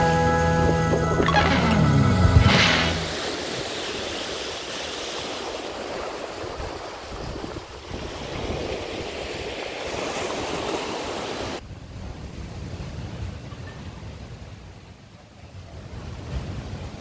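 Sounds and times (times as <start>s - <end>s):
wind on microphone: 0.0s - 14.4s
surf washing onto beach: 1.2s - 13.6s.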